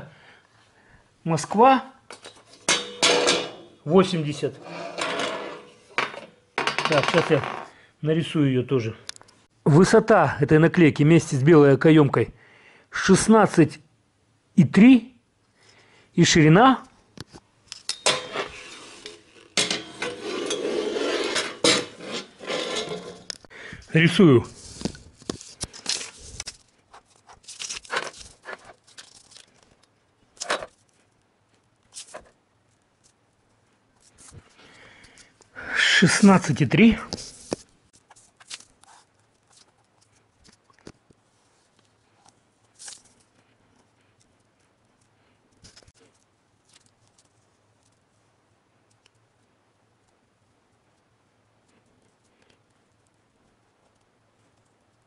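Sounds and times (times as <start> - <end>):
metal clinking and scraping: 2.1 - 7.7, 17.7 - 23.4.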